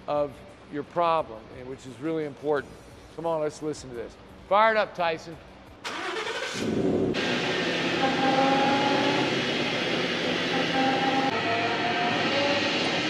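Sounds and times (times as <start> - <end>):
truck driveline turning: 5.8 - 13.0
faint differential whine: 6.6 - 13.0.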